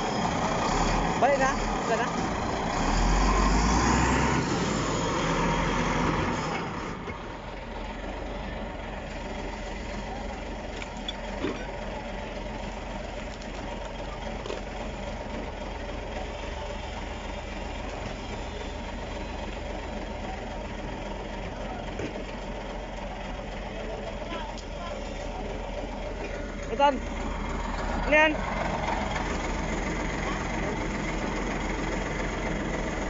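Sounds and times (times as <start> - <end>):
bulldozer diesel engine drone: 0.0 - 33.0.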